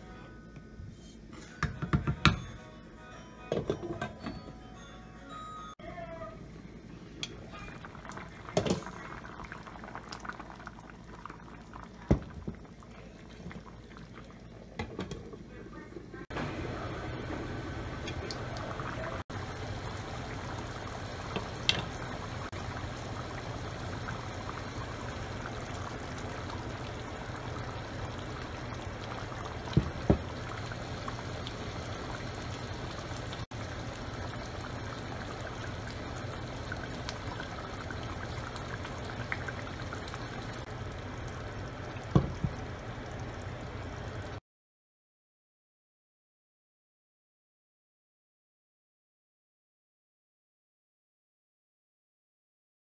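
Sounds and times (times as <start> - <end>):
curry bubbling in pan: 7.2 - 15.5, 16.4 - 44.4.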